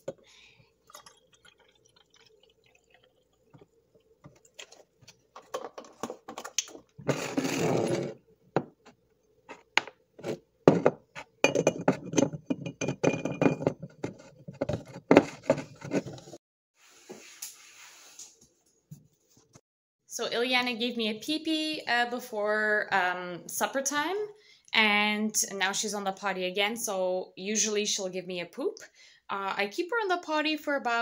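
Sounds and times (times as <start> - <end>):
milk pouring into bottle: 0.1 - 5.3.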